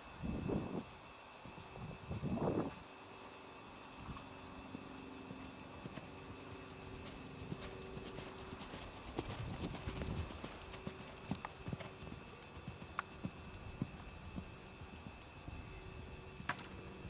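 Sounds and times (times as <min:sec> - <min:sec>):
pony hoofbeats on sand: 0:05.3 - 0:15.2.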